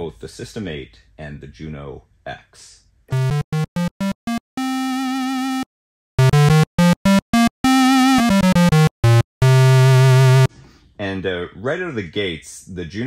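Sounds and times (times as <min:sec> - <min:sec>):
bright synth notes: 0:03.1 - 0:05.6, 0:06.2 - 0:10.5.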